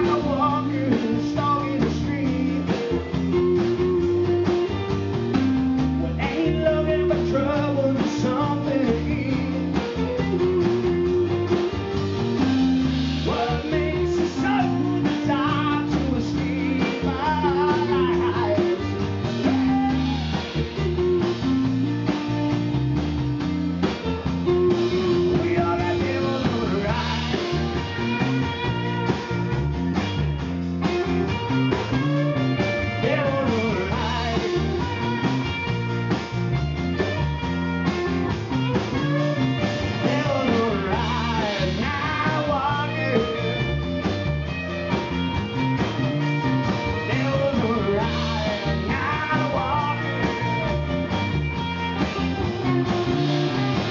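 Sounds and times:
man singing: 0.0 - 4.8, 6.0 - 11.6, 13.2 - 21.6, 24.5 - 29.4, 32.5 - 35.3, 39.0 - 44.0, 46.7 - 51.2
live rock band playing: 0.0 - 53.9.

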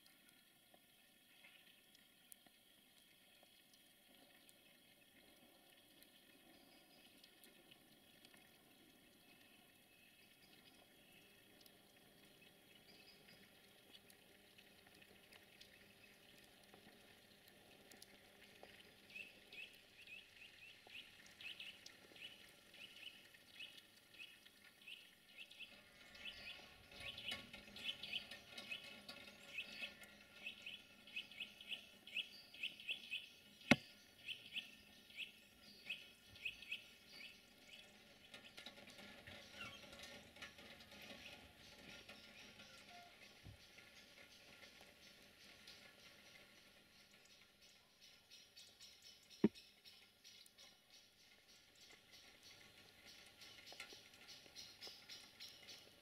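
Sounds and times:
small bird chirping: 19.1 - 38.6.

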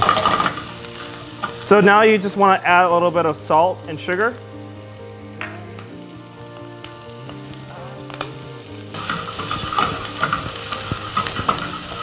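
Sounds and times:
food sizzling in frying pan: 0.0 - 12.0
spatula scraping pan: 8.9 - 12.0.

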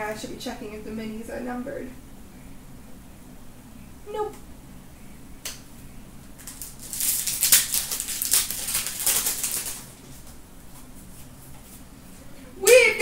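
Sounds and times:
foil wrapper crinkling: 6.4 - 10.2.

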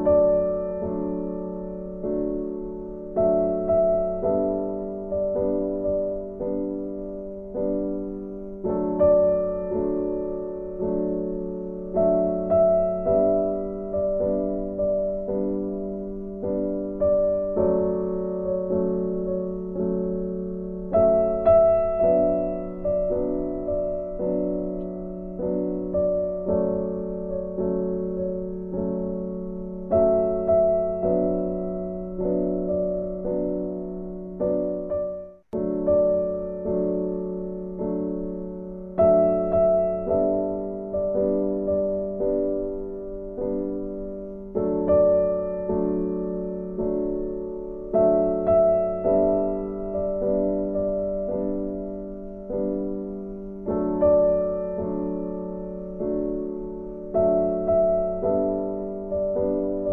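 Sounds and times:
gentle solo piano music: 0.0 - 59.9.

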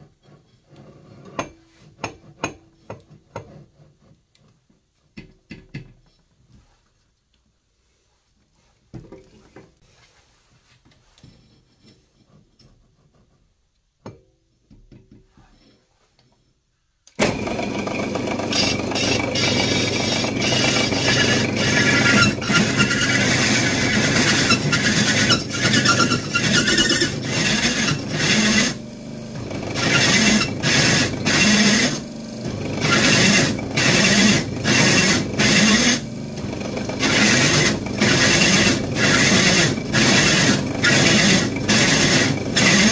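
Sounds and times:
drill cutting metal: 17.2 - 42.9
drill motor hum: 17.2 - 42.9.

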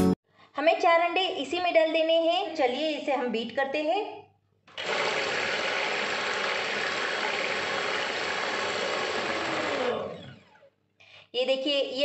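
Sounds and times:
electric mixer whisking eggs: 4.7 - 10.7.

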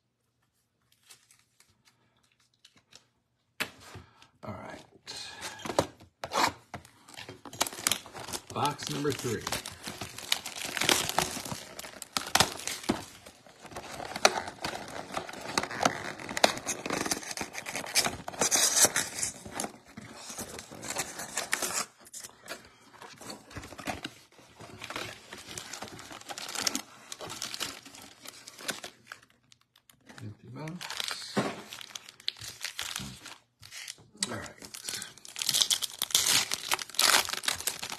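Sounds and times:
cardboard rustling and crackling: 6.3 - 30.1, 35.3 - 37.9
cardboard flap ripping: 35.4 - 37.9.

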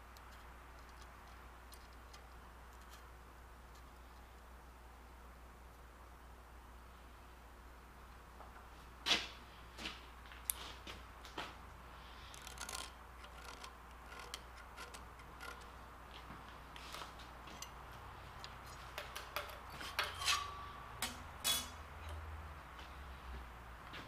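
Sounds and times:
metal tools clicking and scraping: 12.2 - 15.7, 16.8 - 22.3
metal ring: 18.9 - 22.2.

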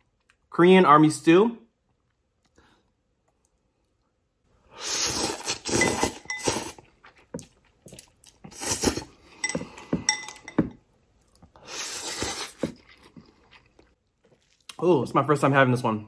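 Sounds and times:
person slurping noodles: 4.7 - 6.9, 8.4 - 10.1, 11.6 - 13.4
chopsticks clinking on glass bowl: 9.4 - 10.7
chewing: 11.2 - 14.8.

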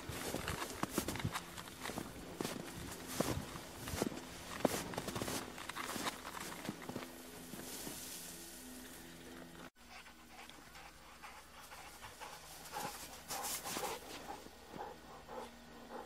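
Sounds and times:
footsteps crunching in snow: 0.0 - 8.8, 12.3 - 15.4
dog panting: 9.8 - 16.0.

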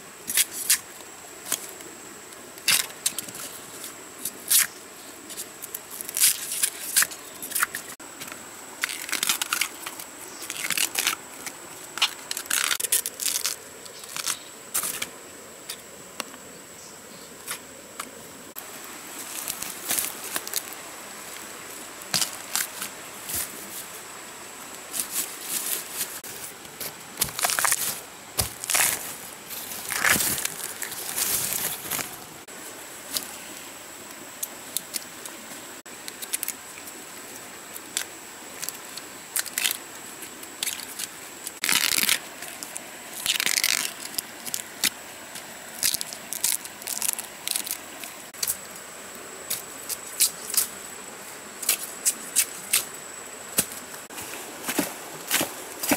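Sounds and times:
dry leaves crunching underfoot: 18.6 - 23.9, 24.9 - 33.3.

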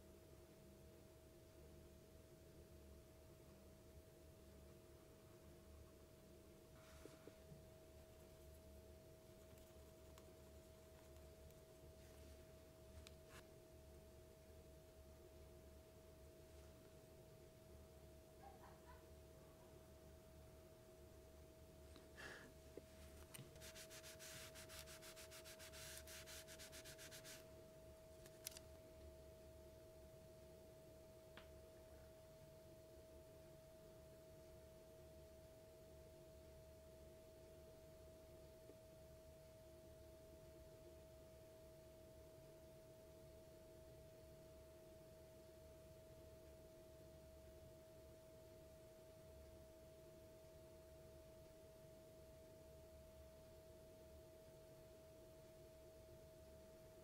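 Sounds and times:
hand rubbing felt mat: 22.2 - 27.4.

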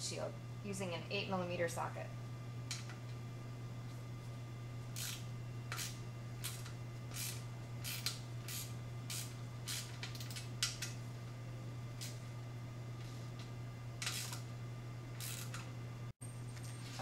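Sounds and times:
steady low hum: 0.0 - 17.0
socket ratchet clicking: 5.0 - 11.0.

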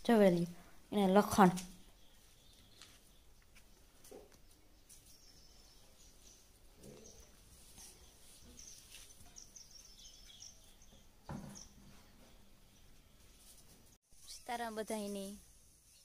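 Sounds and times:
faint high bird chirps: 1.8 - 3.5, 4.2 - 11.9, 14.1 - 16.0.

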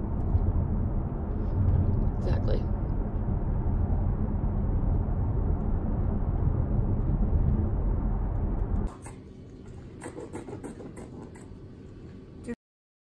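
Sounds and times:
road and engine noise in car: 0.0 - 8.9.

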